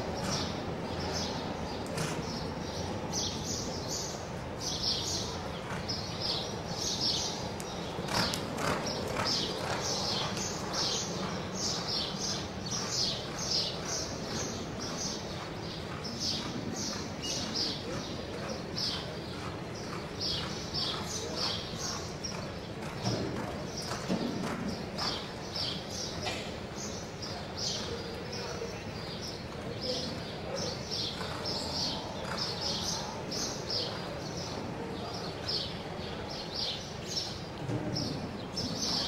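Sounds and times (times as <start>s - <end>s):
horse hoofbeats on dirt: 7.6s - 25.8s.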